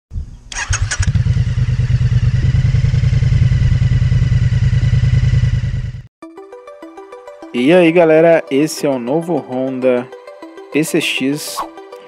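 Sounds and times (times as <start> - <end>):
motorcycle engine running: 0.2 - 6.1.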